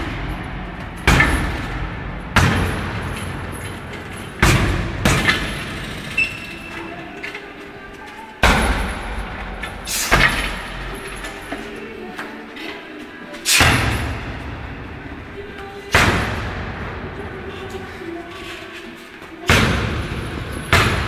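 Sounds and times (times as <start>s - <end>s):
kicks and punches thudding bag: 1.0s - 3.3s.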